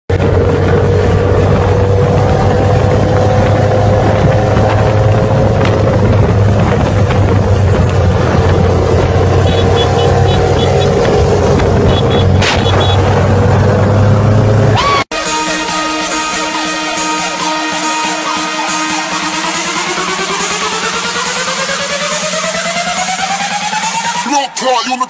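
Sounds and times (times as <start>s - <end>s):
wind on microphone: 0.1s - 9.4s
engine droning: 0.1s - 24.2s
road rumble: 0.1s - 24.2s.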